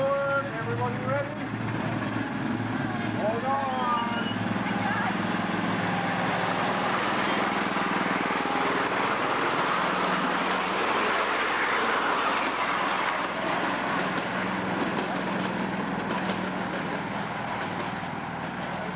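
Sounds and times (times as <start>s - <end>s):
rushing noise of moving train: 0.0s - 18.9s.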